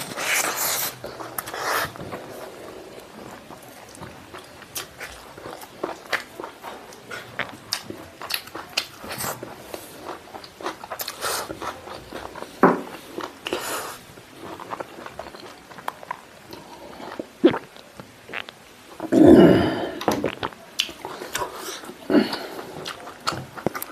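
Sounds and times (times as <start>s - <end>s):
wet chewing and mouth smacking: 3.6s - 12.5s, 14.4s - 18.6s, 20.0s - 23.9s.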